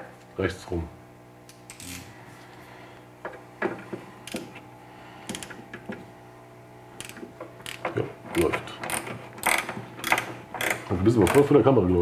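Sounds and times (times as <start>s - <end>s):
steady low hum: 0.0s - 12.0s
hand ratchet clicking: 5.3s - 5.6s, 7.0s - 7.8s, 8.8s - 11.5s.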